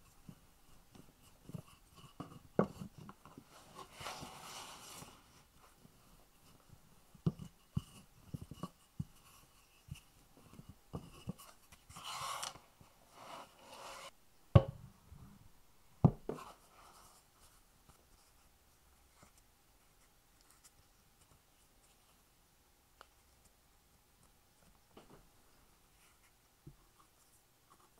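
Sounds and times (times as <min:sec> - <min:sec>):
pastry sheet rustling: 0:00.0 - 0:06.7.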